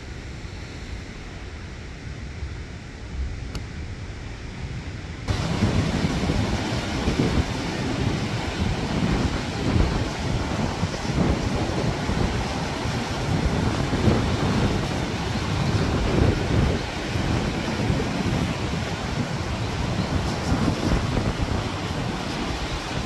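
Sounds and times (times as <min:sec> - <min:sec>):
wind buffeting microphone: 0:00.0 - 0:23.0
sea waves breaking on rocks: 0:05.3 - 0:23.0.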